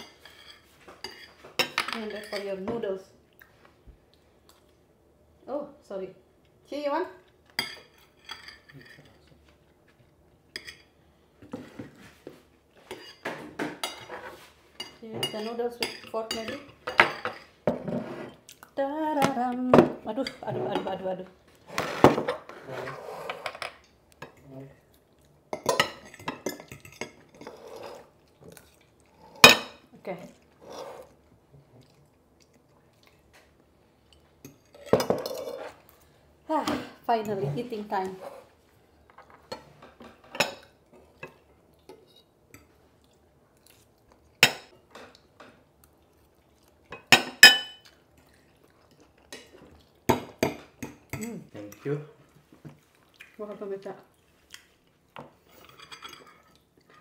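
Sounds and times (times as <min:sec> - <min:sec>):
cutlery clinking on ceramic plates: 0:07.6 - 0:09.3, 0:25.5 - 0:28.1, 0:39.2 - 0:42.8, 0:46.9 - 0:48.0, 0:55.2 - 0:57.0.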